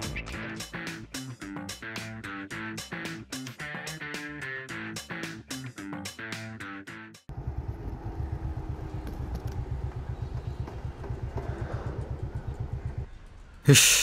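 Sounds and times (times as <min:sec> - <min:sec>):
guitar music: 0:00.0 - 0:07.1
motorcycle engine running: 0:07.3 - 0:13.5.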